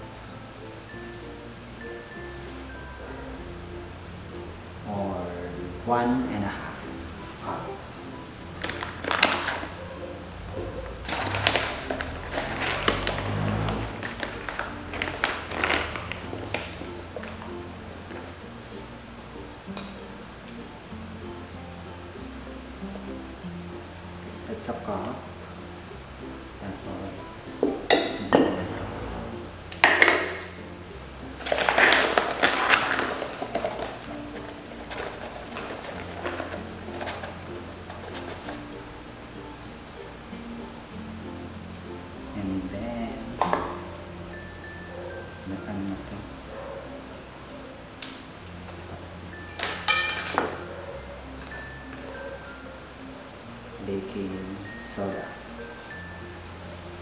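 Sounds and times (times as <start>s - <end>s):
soft background music: 0.0s - 57.0s
clatter and packaging rustling: 8.6s - 9.8s, 10.9s - 17.5s, 31.4s - 38.7s, 49.6s - 50.6s
plastic bag crinkling: 8.6s - 9.8s, 10.9s - 17.5s, 31.4s - 38.6s
metal cup clinking on containers: 29.8s - 30.5s, 31.4s - 37.3s, 49.6s - 50.6s.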